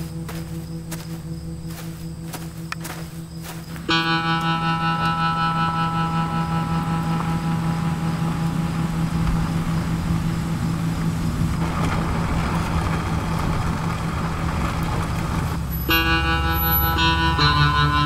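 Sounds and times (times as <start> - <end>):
held musical notes: 0.0 - 12.5, 15.5 - 18.0
low steady hum: 0.0 - 18.0
rushing noise: 0.0 - 18.0.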